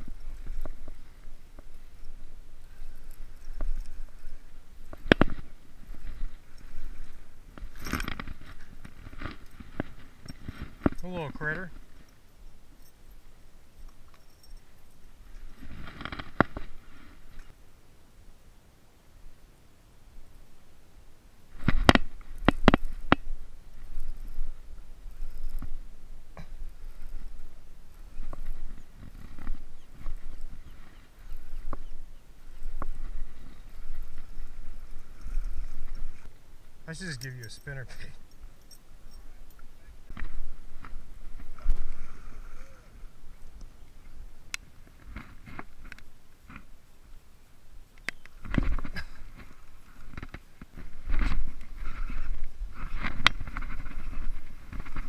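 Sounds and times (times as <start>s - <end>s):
wind rumble on microphone: 48.4s - 55.0s.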